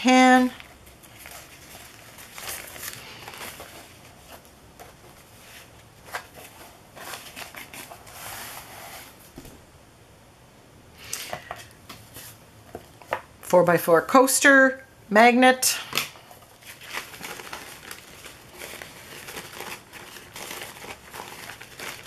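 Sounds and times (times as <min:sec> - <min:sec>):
paper napkin rustling: 0:00.2 - 0:09.6, 0:16.3 - 0:22.0.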